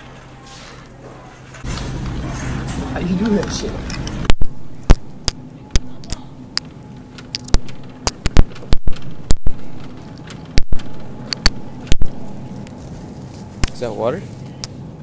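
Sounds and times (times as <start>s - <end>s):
faint steady hum: 0.0s - 15.0s
sharp irregular clicks and knocks: 3.4s - 12.8s.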